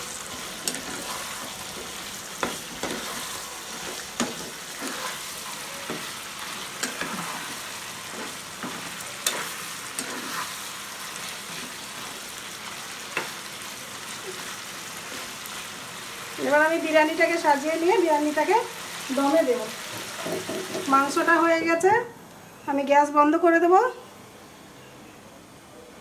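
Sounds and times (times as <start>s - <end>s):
curry sizzling in a pan: 0.0s - 21.7s
metal spatula scraping pan: 0.4s - 10.6s.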